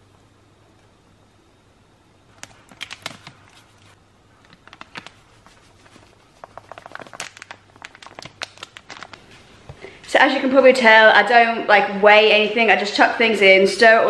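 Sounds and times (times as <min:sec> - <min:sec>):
faint low hum: 0:00.0 - 0:14.0
spice containers rattling: 0:02.4 - 0:09.2.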